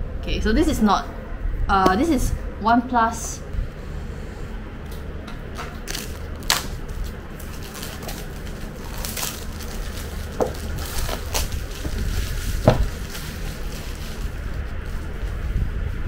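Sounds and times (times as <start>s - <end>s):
low steady hum: 0.0s - 16.0s
plastic film pulled off: 5.7s - 15.4s
cardboard box rustling: 7.4s - 15.4s.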